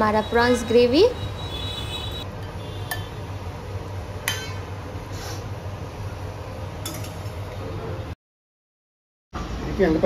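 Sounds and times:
dishes clinking: 4.2s - 4.6s, 6.8s - 7.3s.

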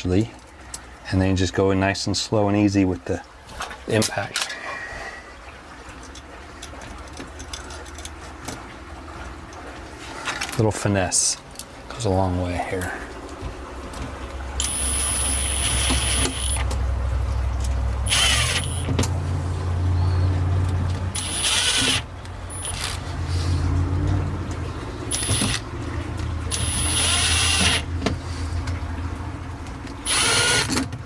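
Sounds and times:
steady low hum: 0.0s - 31.0s
impact driver whine: 14.6s - 16.6s, 18.1s - 18.9s, 21.2s - 22.0s, 26.5s - 27.9s.

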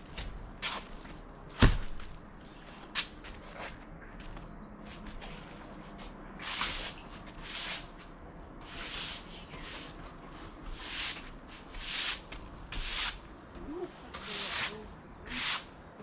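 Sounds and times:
broom scraping roofing: 5.3s - 13.3s, 13.9s - 15.8s.

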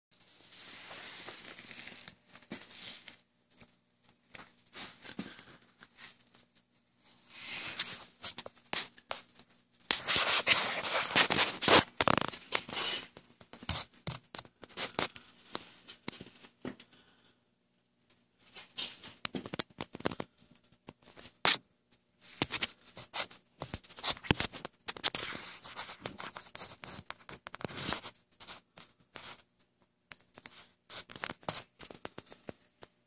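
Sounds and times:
scraping and rustling: 0.2s - 16.6s.

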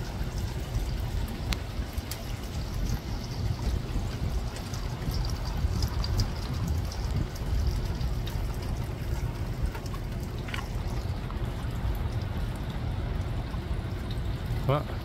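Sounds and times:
rain falling on a pond: 0.0s - 15.0s
wind rumbling on microphone: 0.0s - 15.0s.

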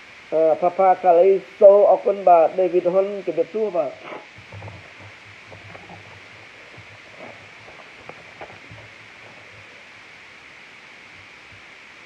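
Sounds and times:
microphone hiss: 0.0s - 12.0s
soft low bumps: 4.3s - 10.2s.

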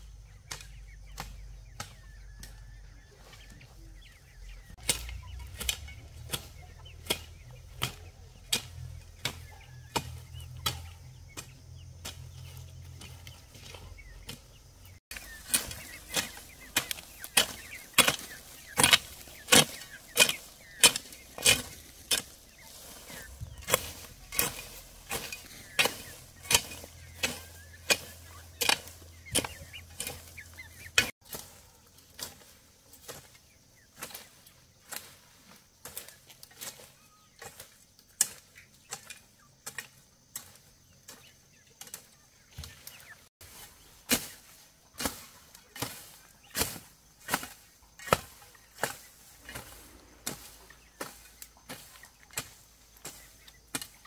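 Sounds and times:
hand tool chopping strikes: 4.8s - 12.3s, 15.1s - 22.4s, 23.0s - 31.5s.

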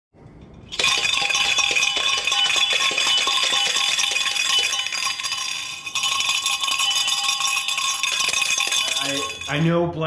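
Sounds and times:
ball rattling in steel tumbler: 0.5s - 9.7s.

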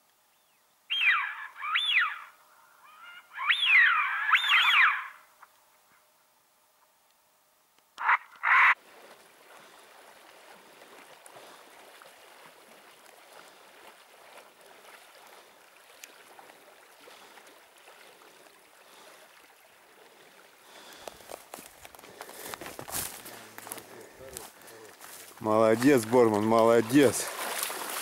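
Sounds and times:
water splashing: 8.4s - 28.0s.

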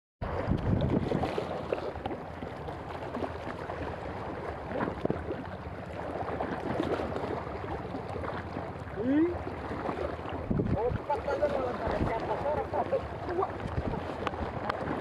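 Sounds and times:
wind buffeting microphone: 0.2s - 1.8s, 9.4s - 15.0s
waves splashing against rocks: 0.2s - 15.0s.

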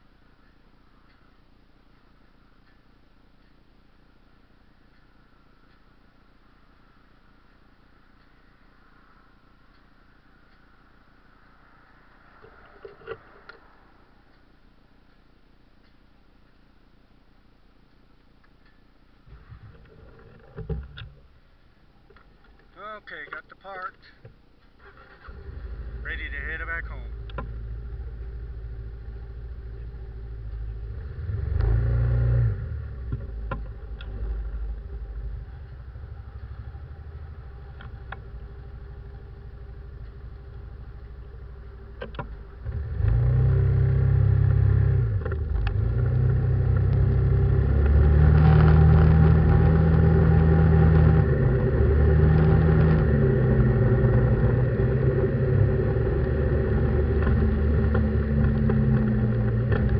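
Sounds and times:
pickup truck engine: 18.6s - 59.9s.

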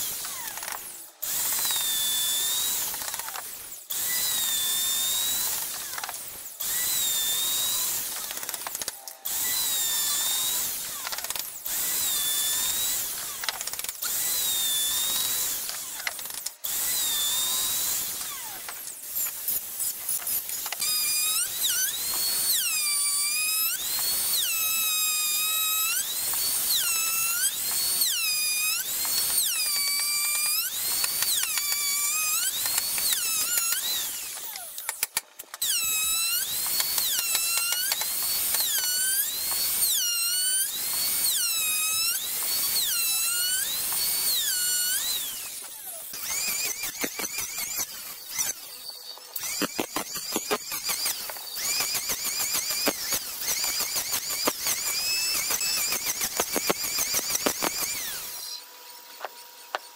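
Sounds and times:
electric hand planer cutting wood: 9.4s - 16.1s, 35.6s - 48.6s, 49.4s - 58.5s.

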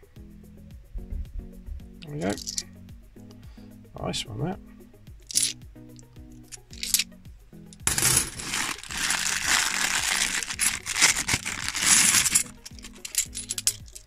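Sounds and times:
soft background music: 0.0s - 14.0s
coins clinking and jingling: 2.0s - 2.8s, 5.2s - 14.0s.

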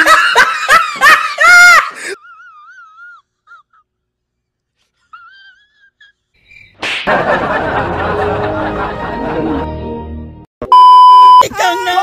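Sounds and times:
music: 7.3s - 10.5s.

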